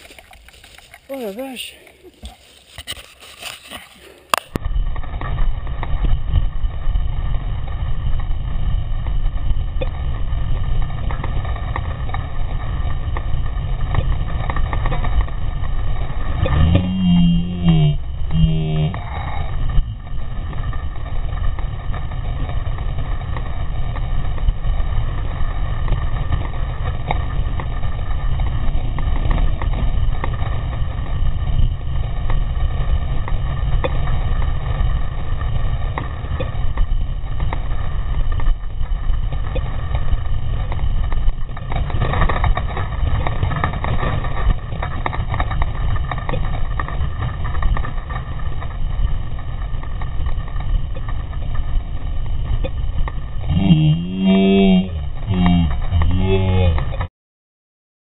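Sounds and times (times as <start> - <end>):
wind and tyre rumble: 0.0 - 57.1
bike clattering over bumps: 19.0 - 53.5.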